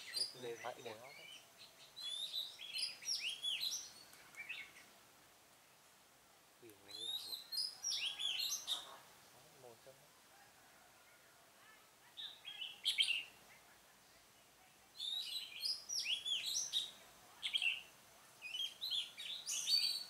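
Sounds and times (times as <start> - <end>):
bird singing whistled phrases: 2.0 - 4.7, 6.9 - 8.9, 12.2 - 13.3, 15.0 - 20.0.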